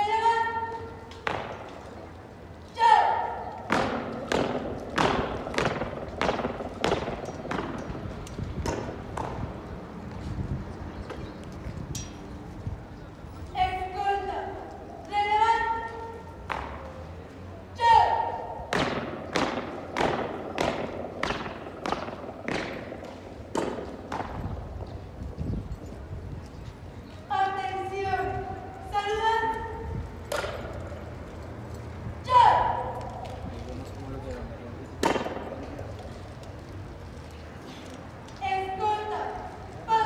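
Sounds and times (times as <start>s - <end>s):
faint footsteps: 3.4s - 13.6s.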